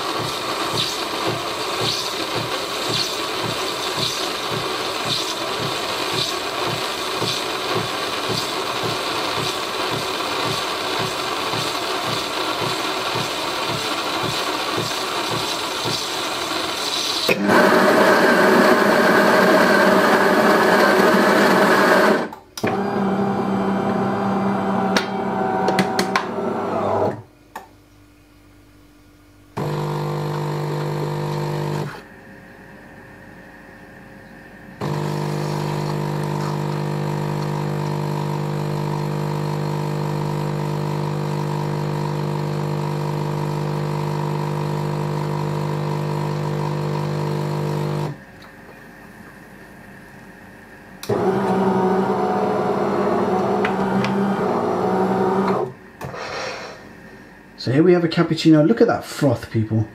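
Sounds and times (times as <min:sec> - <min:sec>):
coffee grinder running: 0:00.0 - 0:27.2, 0:29.6 - 0:32.0, 0:34.8 - 0:48.2, 0:51.0 - 0:55.7
pump humming: 0:29.6 - 0:32.2, 0:34.8 - 0:48.3, 0:51.0 - 0:55.8.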